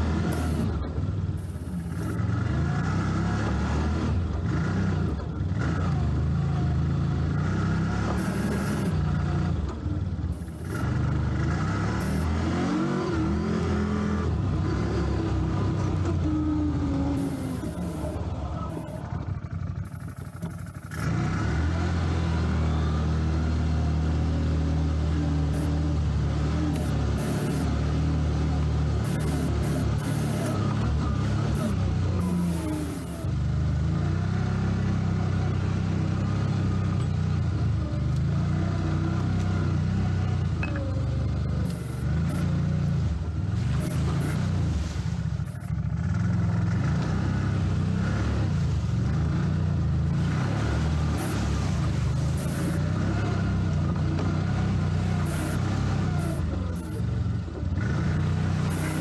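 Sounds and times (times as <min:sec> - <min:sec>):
atv engine revving while riding: 0:00.0 - 0:59.0.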